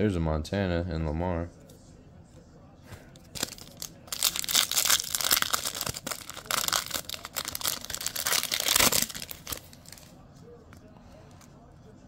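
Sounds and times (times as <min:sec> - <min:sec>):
wrapper crinkling and tearing: 0:03.2 - 0:10.1.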